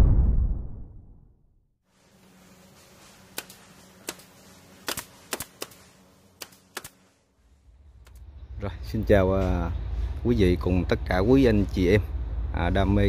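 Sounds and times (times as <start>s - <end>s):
faint steady hum: 1.9s - 13.0s
sharp clicks: 3.4s - 5.8s, 6.4s - 7.0s, 8.0s - 8.3s.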